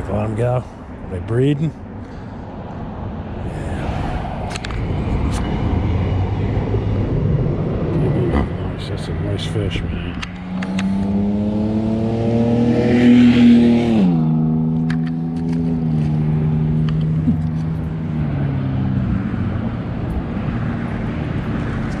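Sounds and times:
motor vehicle driving past: 10.0 - 19.4.

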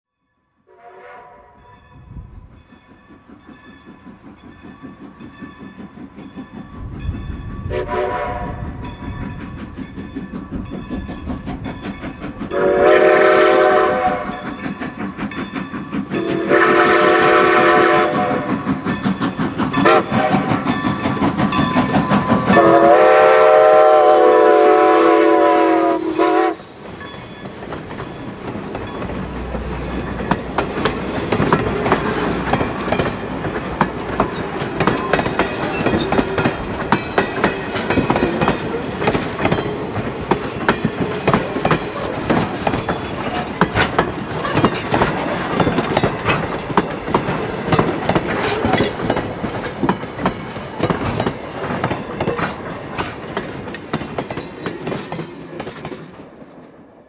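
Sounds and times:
steam whistle: 0.7 - 1.6, 7.7 - 8.8, 12.5 - 14.5, 16.1 - 18.6, 19.8 - 20.7, 22.3 - 26.7
steam locomotive exhaust beats: 0.7 - 57.0
wheels clicking over rail joints: 8.8 - 12.6, 14.0 - 22.8, 26.5 - 56.8.

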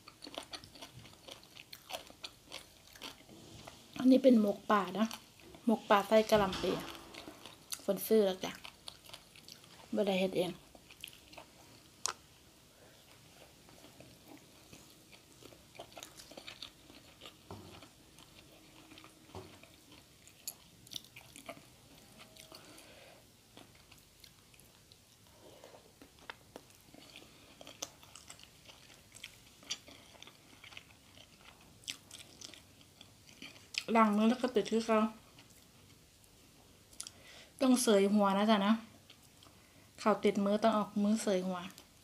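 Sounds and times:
person chewing food: 0.0 - 4.0, 6.9 - 7.9, 8.5 - 10.0, 10.6 - 12.3, 12.9 - 33.9, 35.2 - 37.2.

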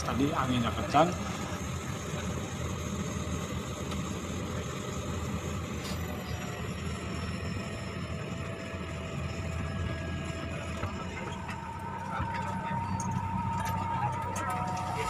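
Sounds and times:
plane engine drone: 0.0 - 15.0
faint thin whine: 5.8 - 15.0.

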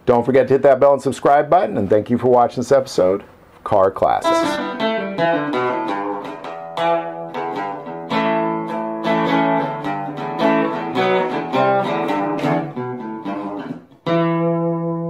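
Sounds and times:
acoustic guitar picking: 4.2 - 15.0.

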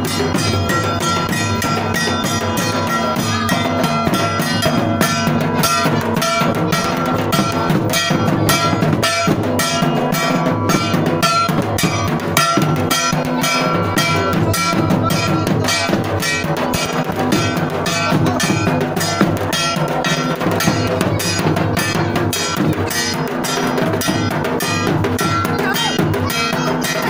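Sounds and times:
steady drum beat: 0.0 - 27.0
sustained pitched instruments: 0.0 - 27.0.

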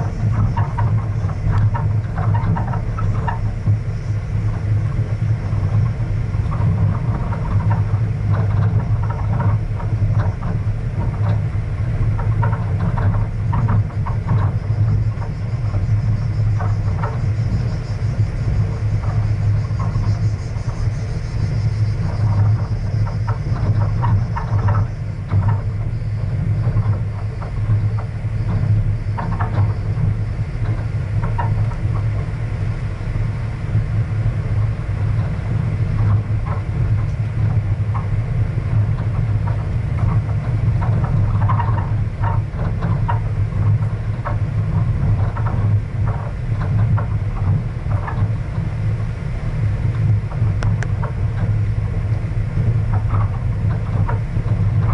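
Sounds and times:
light clicks and rattles: 0.0 - 54.9
vehicle rumbling on gravel: 0.0 - 54.9.

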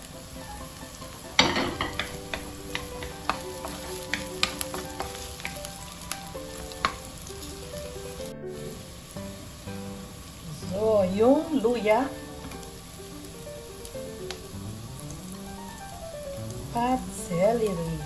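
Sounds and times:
garlic and onion sizzling in oil: 0.0 - 18.0
spatula clicking on pan: 1.4 - 7.3.

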